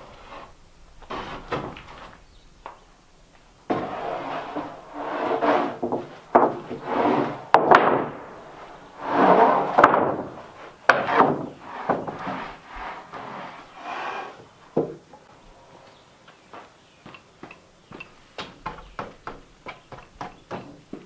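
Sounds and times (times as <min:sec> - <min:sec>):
wood scraping over wood: 0:00.0 - 0:02.3, 0:03.7 - 0:14.6
boards knocking onto pile: 0:05.6 - 0:08.2, 0:09.3 - 0:12.4.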